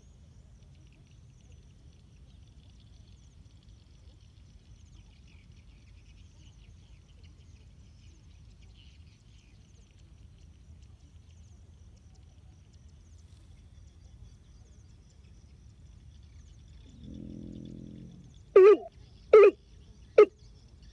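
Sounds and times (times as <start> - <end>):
insects ticking: 8.4 - 20.9
birds chirping: 16.7 - 20.4.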